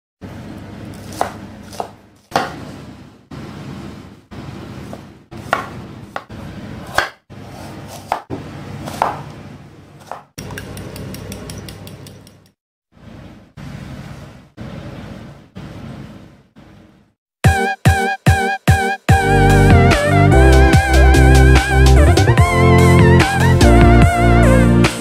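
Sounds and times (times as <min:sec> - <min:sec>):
knife chopping on wooden board: 0:00.9 - 0:02.6, 0:04.9 - 0:09.3, 0:10.0 - 0:12.0
whisking in glass bowl: 0:10.4 - 0:12.5.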